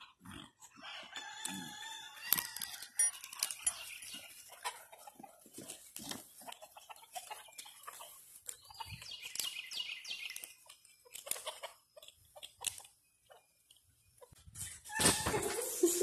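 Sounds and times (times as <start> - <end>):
chickens squawking: 3.6 - 10.4, 11.0 - 13.4.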